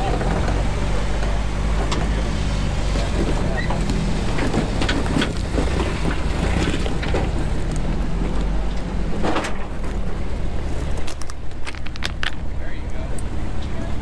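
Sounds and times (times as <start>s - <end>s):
truck engine running: 0.0s - 14.0s.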